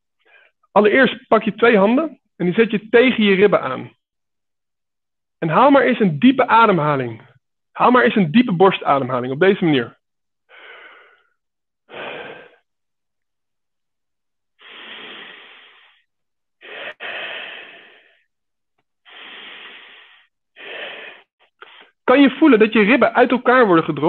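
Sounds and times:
man breathing deeply: 10.5s - 12.7s, 14.6s - 18.3s, 19.0s - 22.0s.

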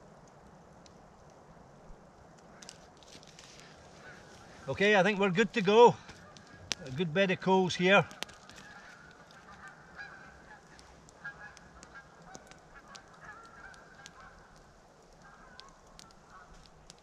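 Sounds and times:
geese honking faintly: 3.5s - 17.0s.

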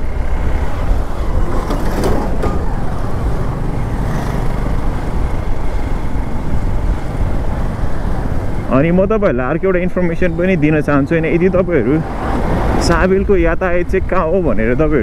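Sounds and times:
wind and road noise: 0.0s - 15.0s
motorcycle engine running: 2.6s - 10.5s.

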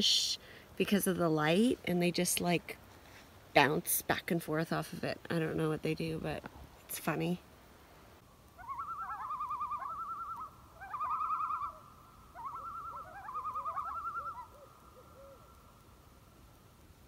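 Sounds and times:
loon tremolo call: 8.6s - 15.5s.

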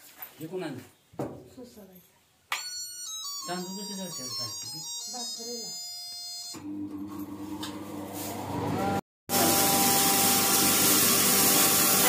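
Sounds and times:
flour mill motor hum: 6.5s - 12.0s.

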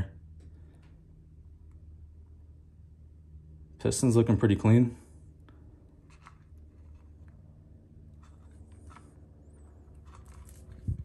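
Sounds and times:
low steady hum: 0.0s - 11.0s
scratchy rubbing of probe cable: 8.1s - 11.0s.

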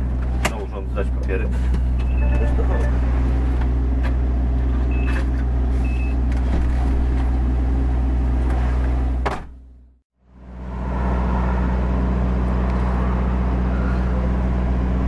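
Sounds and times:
short high beeps: 2.1s - 3.1s.

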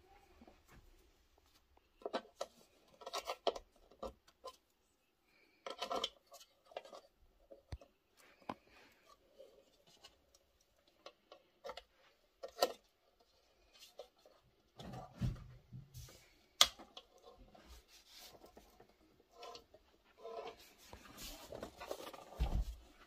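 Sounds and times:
small metallic clicks and scrapes: 1.8s - 15.1s.

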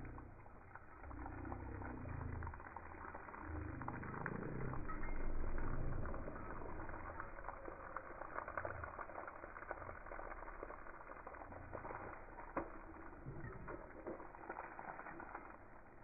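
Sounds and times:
hose water spraying on paving: 0.0s - 16.0s.

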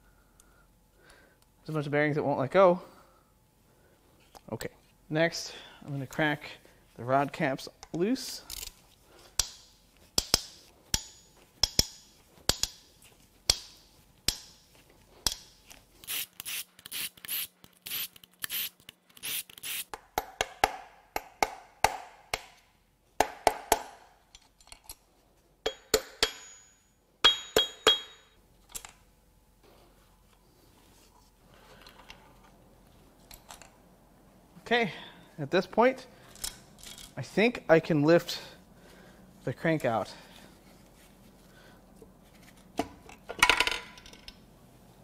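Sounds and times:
metal parts clinking: 24.3s - 25.0s, 36.2s - 37.2s.

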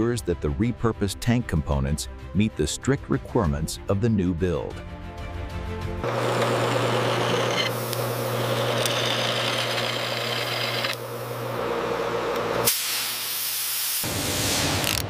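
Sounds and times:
drill grinding through steel: 6.0s - 11.0s
drill motor hum: 6.0s - 12.6s.

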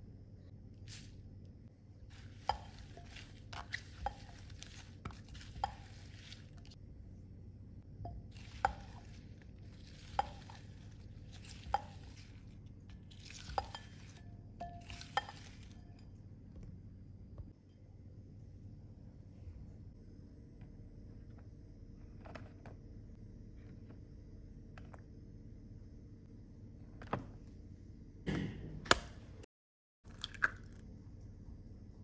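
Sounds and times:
wet swishing stirring: 2.0s - 6.8s, 8.0s - 16.0s.

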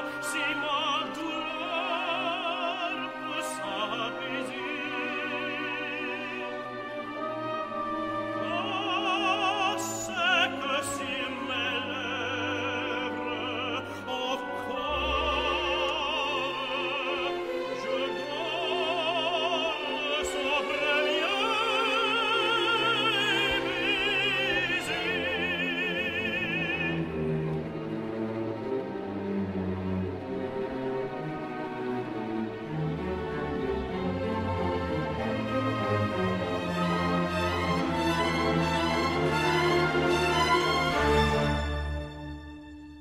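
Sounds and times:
tenor singing opera: 0.0s - 42.5s
orchestra playing: 0.0s - 43.0s.

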